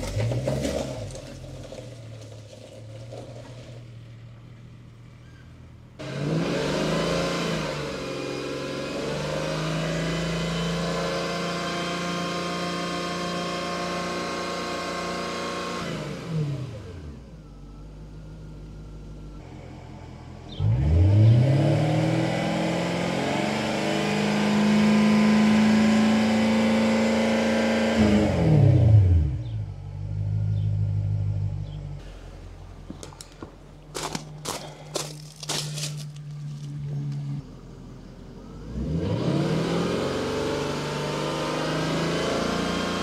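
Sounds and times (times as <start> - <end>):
car engine revving and idling: 0.0 - 43.0
footsteps on gravel: 32.8 - 36.8.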